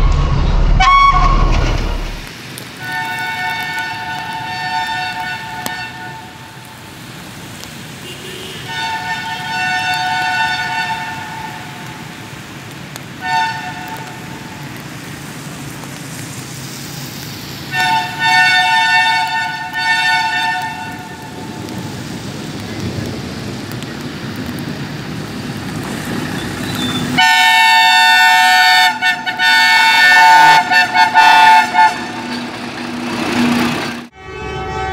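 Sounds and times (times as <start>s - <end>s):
low rumble: 0.0s - 2.3s
locomotive air horn blasts: 0.8s - 1.5s, 2.8s - 6.7s, 8.0s - 12.0s, 13.2s - 14.4s, 17.7s - 21.3s, 26.9s - 32.5s, 34.1s - 34.9s.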